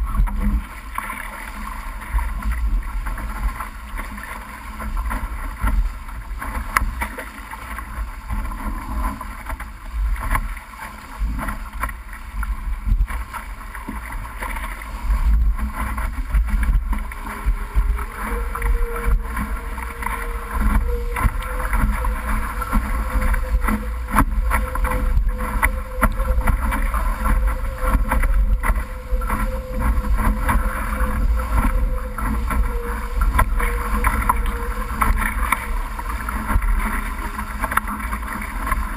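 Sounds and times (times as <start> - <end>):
faint steady hum: 0.0 - 38.9
water rushing past hull: 0.0 - 38.9
wind buffeting microphone: 11.2 - 38.9.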